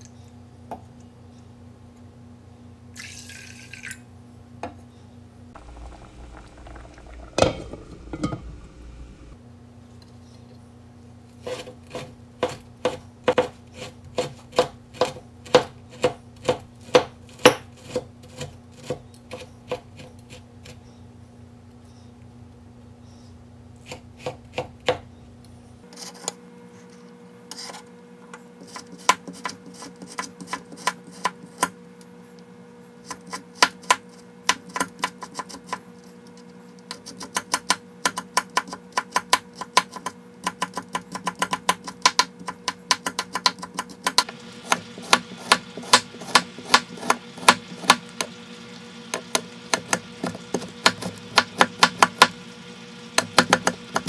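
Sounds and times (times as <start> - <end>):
cleaver chopping on wooden board: 37.3 - 48.0.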